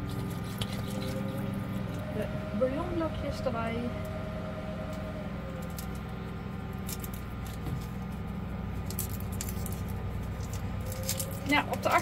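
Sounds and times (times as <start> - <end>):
lawnmower engine running: 0.0 - 12.0.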